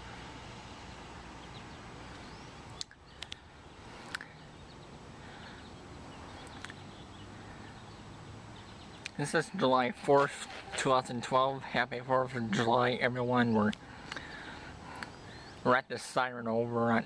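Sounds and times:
outdoor background hiss: 0.0 - 17.0
faint bird chirps: 14.2 - 15.7.

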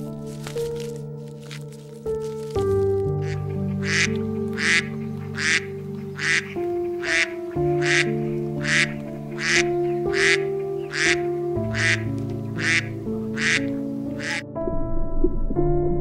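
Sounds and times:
soft background music: 0.0 - 16.0
duck quacking: 3.2 - 14.4.

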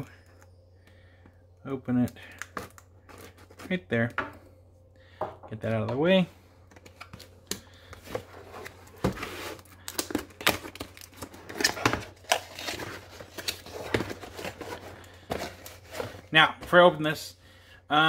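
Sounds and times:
cardboard box rustling and scraping: 8.0 - 9.7, 11.3 - 16.4.

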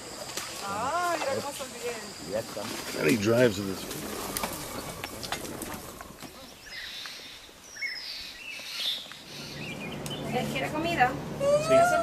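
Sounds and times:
faint bird calls: 3.6 - 10.5.

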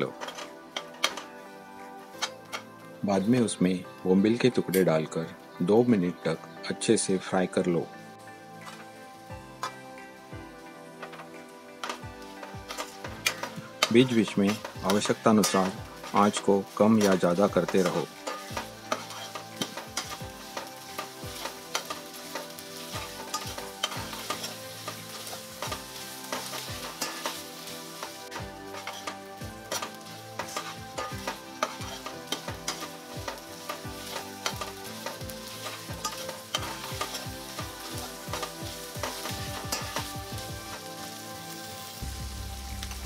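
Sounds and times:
metal spoon scraping pan: 11.0 - 37.7
fish frying in oil: 12.6 - 43.0.

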